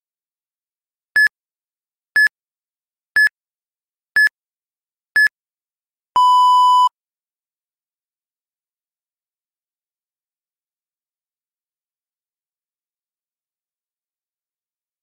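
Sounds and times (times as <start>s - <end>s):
short high beeps: 6.2s - 6.9s.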